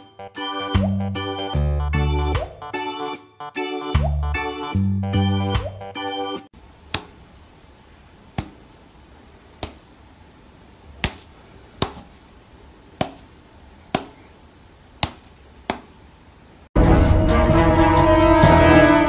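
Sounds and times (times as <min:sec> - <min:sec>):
loud music: 0:16.8 - 0:19.0.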